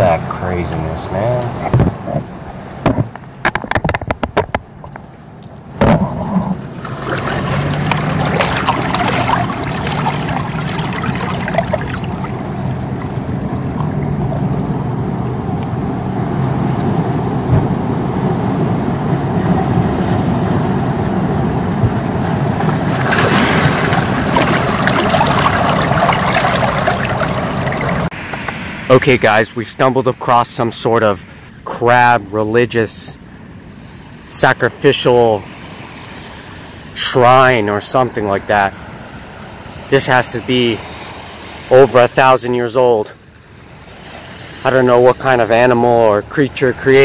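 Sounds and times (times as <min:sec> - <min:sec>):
sharp clicks and knocks: 0:01.6 - 0:06.6
seawater sloshing in rock pool: 0:06.0 - 0:15.7, 0:22.3 - 0:28.1
surge of water washing in: 0:06.0 - 0:28.9, 0:43.6 - 0:45.9.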